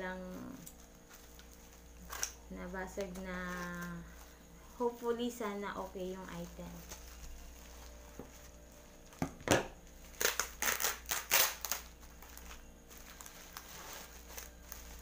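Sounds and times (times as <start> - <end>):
plastic packaging tearing and crinkling: 0.2 - 4.3, 6.3 - 8.6, 10.0 - 15.0.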